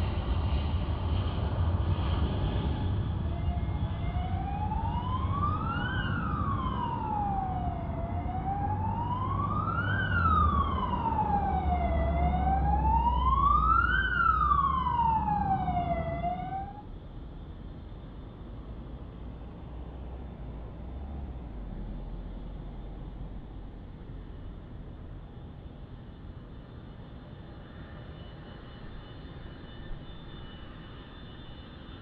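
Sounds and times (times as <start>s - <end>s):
jet engines rumbling: 0.0s - 32.0s
siren wailing: 3.2s - 16.9s.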